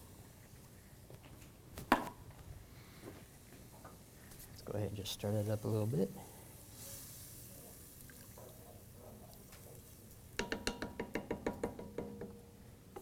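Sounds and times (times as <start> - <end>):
spoon tapping ringing pot: 10.4 - 12.4.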